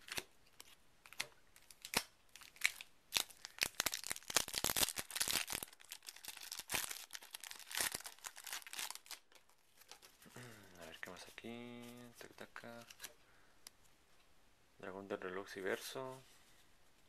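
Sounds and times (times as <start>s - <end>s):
foil wrapper crinkling and tearing: 0.0s - 13.1s.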